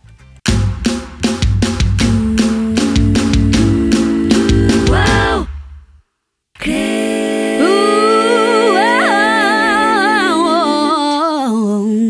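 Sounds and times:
voice singing with vibrato: 2.0 - 5.5, 6.6 - 12.0
voices holding sung notes: 2.1 - 5.5, 6.6 - 12.0.

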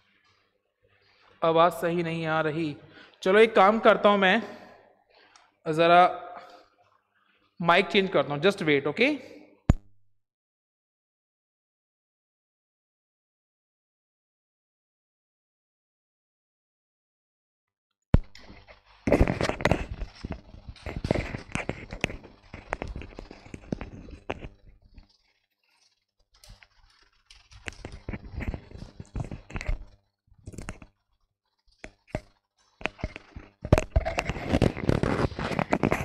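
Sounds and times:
microphone handling noise: 18.2 - 25.0, 27.5 - 30.9, 31.9 - 36.0.

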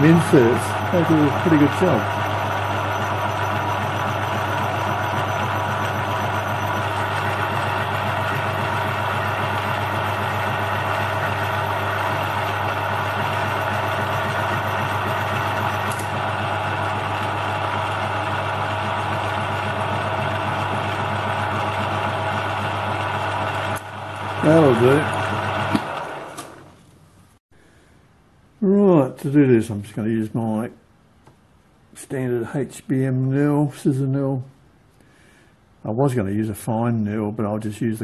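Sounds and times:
metal lathe humming and whining: 0.0 - 26.7.

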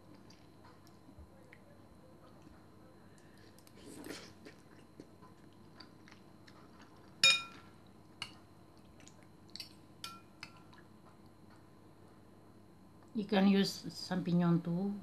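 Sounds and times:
cutlery clinking on ceramic bowl: 7.2 - 7.6.

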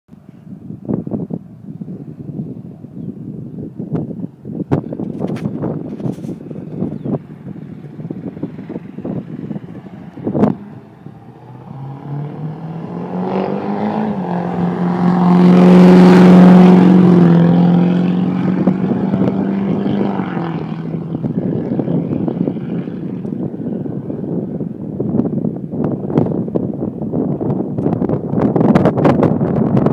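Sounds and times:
pickup truck driving past: 7.4 - 23.8.

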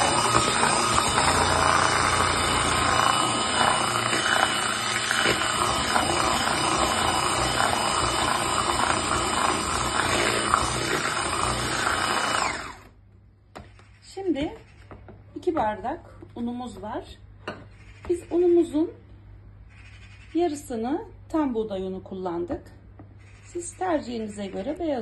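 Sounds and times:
electric hand mixer running: 0.0 - 12.9.

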